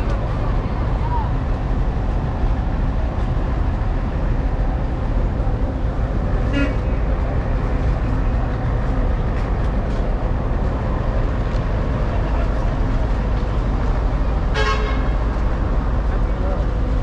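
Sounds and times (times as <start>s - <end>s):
street traffic rumble: 0.0s - 17.0s
vehicle horn toot: 6.5s - 6.8s, 14.5s - 15.1s.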